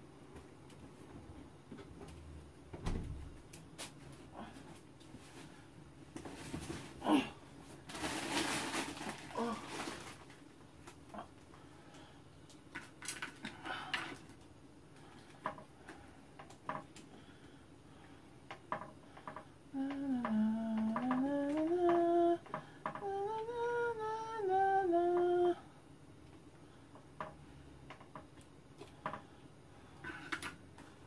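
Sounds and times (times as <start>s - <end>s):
woman humming: 7.0s - 7.4s, 9.3s - 9.8s, 19.7s - 25.7s.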